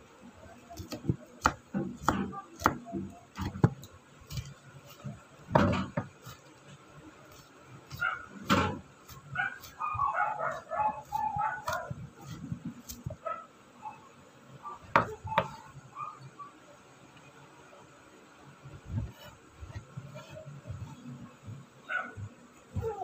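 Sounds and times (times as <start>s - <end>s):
knife chopping on wooden board: 0.8s - 6.4s, 10.8s - 13.2s, 14.9s - 15.6s.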